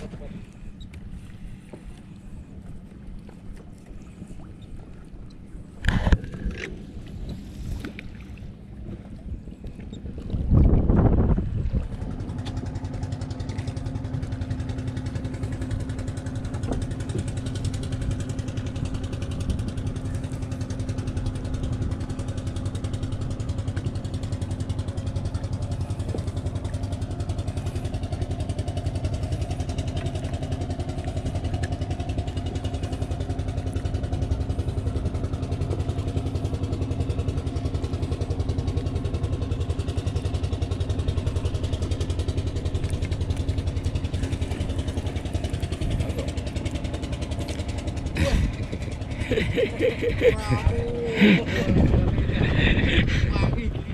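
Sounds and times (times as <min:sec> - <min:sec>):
boat engine running: 0:00.0 - 0:53.9.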